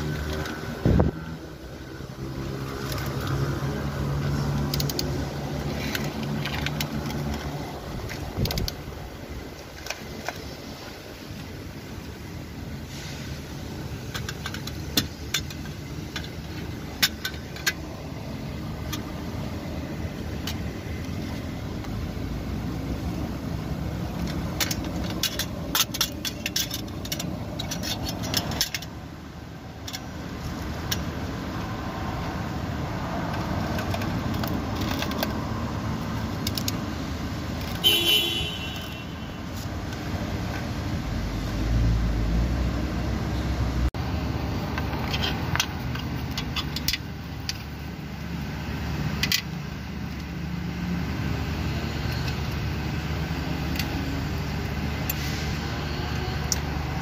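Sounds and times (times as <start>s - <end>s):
hand tools clicking: 4.5s - 8.9s, 24.1s - 29.0s.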